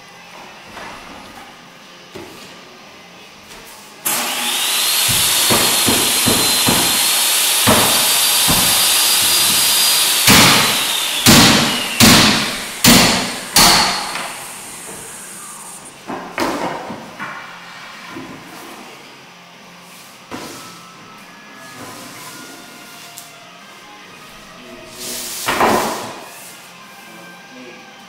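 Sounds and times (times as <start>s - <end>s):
mallet striking flooring nailer: 4.1s - 15.3s, 25.4s - 26.2s
motor whine: 4.1s - 16.0s.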